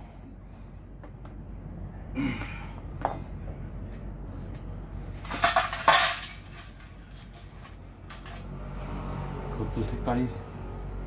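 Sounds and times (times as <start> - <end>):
metal tools clattering: 5.2 - 8.5.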